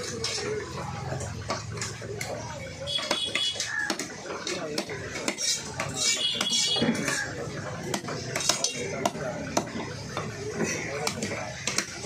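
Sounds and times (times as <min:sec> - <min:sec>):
knife chopping fish on wood: 0:03.0 - 0:12.0.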